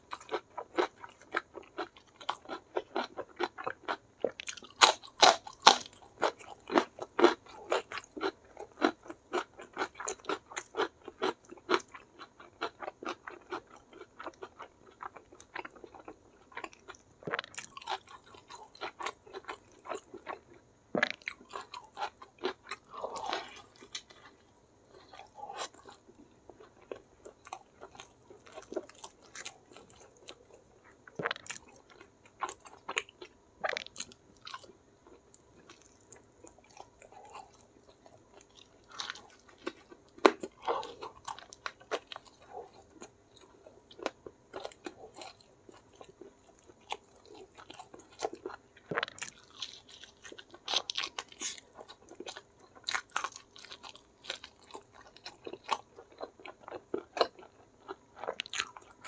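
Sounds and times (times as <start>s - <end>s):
crunchy bites into fried chicken: 0.2s - 16.6s, 38.4s - 59.0s
wet chewing and lip smacking: 21.0s - 59.0s.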